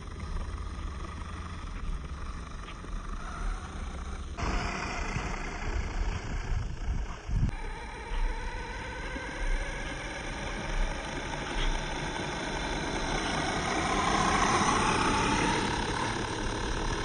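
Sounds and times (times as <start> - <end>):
motor and gear whine: 0.0 - 17.0
tyre noise on asphalt: 7.1 - 17.0.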